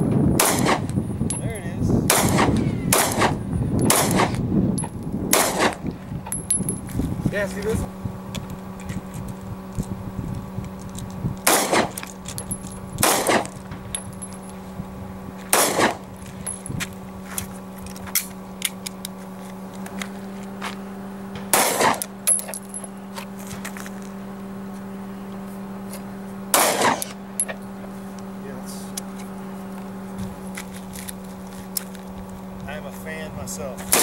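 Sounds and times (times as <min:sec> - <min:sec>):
pistol shots with echo: 0:00.4 - 0:00.9, 0:02.1 - 0:04.4, 0:05.3 - 0:05.8, 0:11.5 - 0:12.0, 0:13.0 - 0:13.5, 0:15.5 - 0:16.0, 0:21.5 - 0:22.0, 0:26.5 - 0:27.1.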